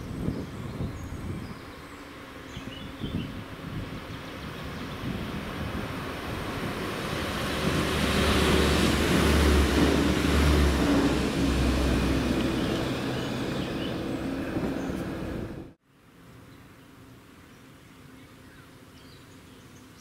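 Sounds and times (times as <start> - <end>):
diesel train passing: 1.7 - 15.8.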